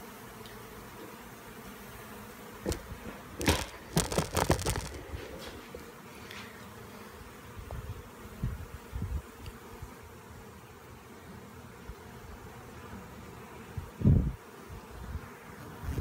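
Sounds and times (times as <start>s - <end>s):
bees buzzing: 0.0s - 16.0s
knocks and rubs on microphone: 2.6s - 5.8s.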